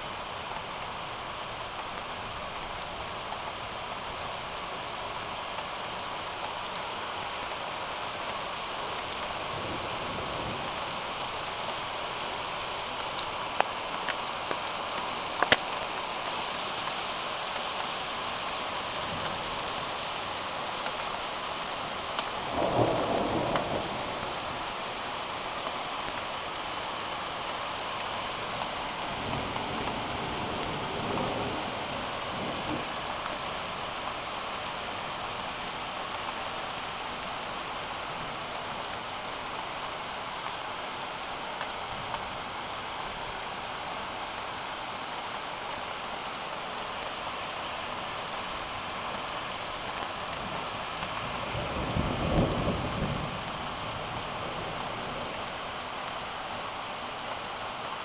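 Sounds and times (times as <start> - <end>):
heavy rain hissing: 0.0 - 58.0
rumble of thunder: 22.4 - 24.5, 51.2 - 55.4.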